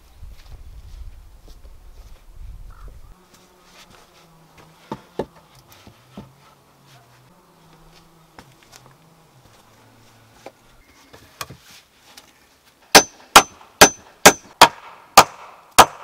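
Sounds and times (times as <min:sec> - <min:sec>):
flying insect buzzing: 0:01.2 - 0:10.8.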